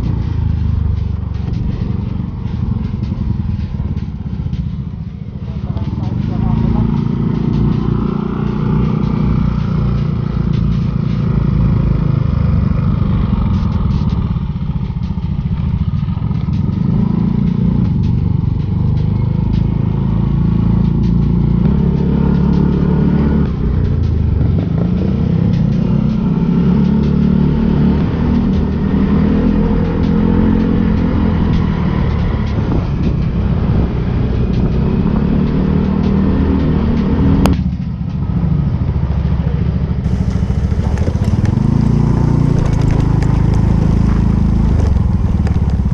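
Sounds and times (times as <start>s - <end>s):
steady low rumble: 0.0s - 45.9s
scooter engine running: 37.6s - 45.9s.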